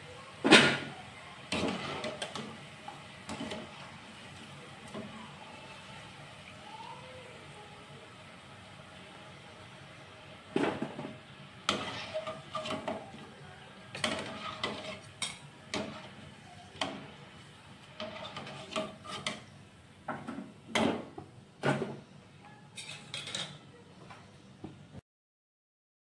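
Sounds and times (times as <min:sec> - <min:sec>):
frying oil hissing: 0:00.0 - 0:22.0
metal skimmer scraping a pan: 0:01.5 - 0:02.5, 0:03.2 - 0:03.9, 0:11.6 - 0:13.0, 0:13.9 - 0:16.2, 0:18.0 - 0:19.5.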